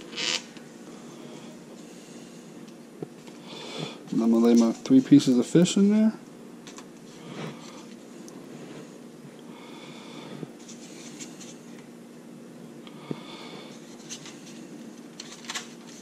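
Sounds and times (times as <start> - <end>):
steady low hum: 0.0 - 16.0
soft rustles of handling food: 7.0 - 9.4, 10.4 - 11.9, 13.6 - 16.0.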